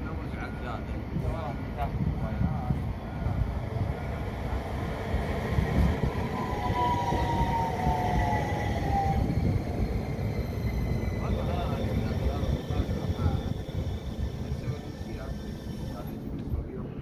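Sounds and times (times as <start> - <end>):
tram wheels rumbling on rail: 0.0 - 17.0
tram whine falling in pitch: 5.2 - 16.2.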